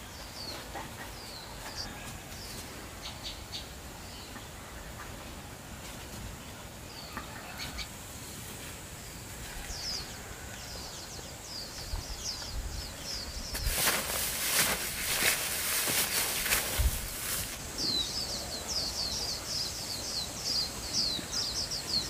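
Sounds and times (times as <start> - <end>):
rustling and knocks of weeds: 12.4 - 17.9.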